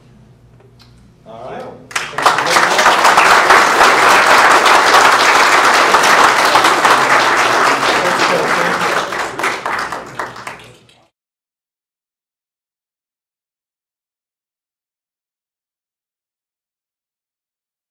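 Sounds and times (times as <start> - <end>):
audience applauding: 1.9 - 11.1.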